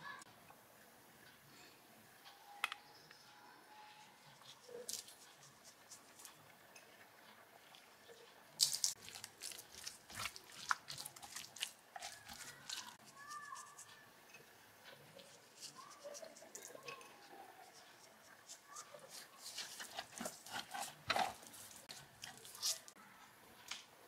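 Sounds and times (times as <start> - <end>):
hands rubbing raw chicken: 4.4 - 6.3, 8.6 - 13.9, 17.6 - 22.9.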